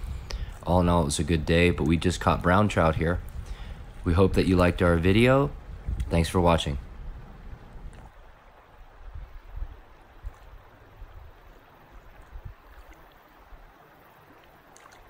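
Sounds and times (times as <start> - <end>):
creek water rushing over stones: 8.0 - 15.0.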